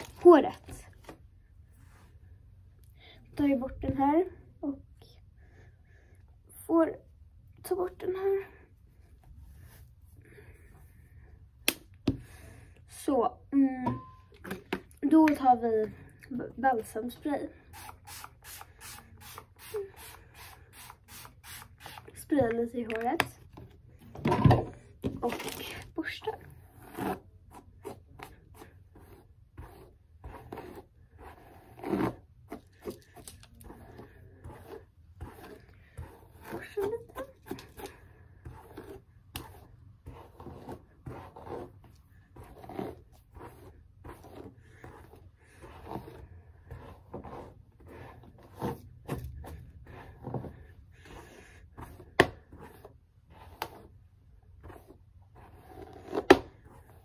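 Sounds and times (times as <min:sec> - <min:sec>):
hairbrush rasping through hair: 0:17.7 - 0:22.2, 0:28.6 - 0:50.1.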